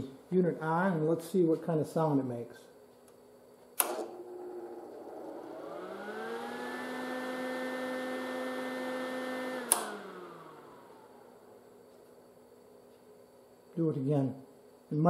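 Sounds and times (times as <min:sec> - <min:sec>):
welder cooling fan whining: 0:02.8 - 0:15.0
click: 0:02.9 - 0:04.1, 0:09.7 - 0:10.0.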